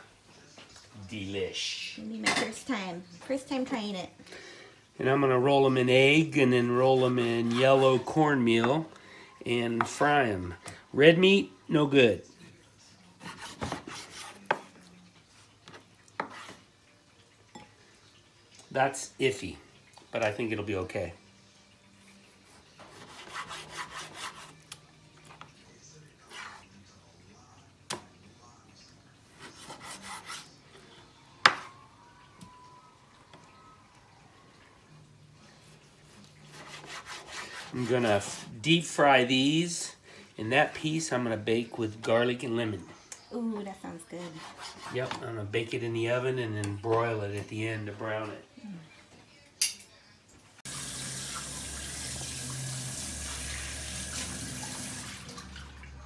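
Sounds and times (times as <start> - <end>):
knife scraping and slicing fish: 13.2 - 14.7, 22.2 - 24.8, 35.7 - 38.6, 44.2 - 45.2
tap water running into sink: 50.6 - 56.0.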